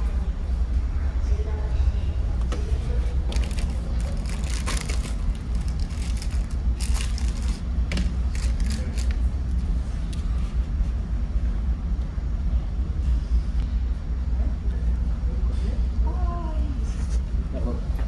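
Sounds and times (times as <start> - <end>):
plastic wrapper crinkling: 3.3 - 7.6, 8.3 - 9.2.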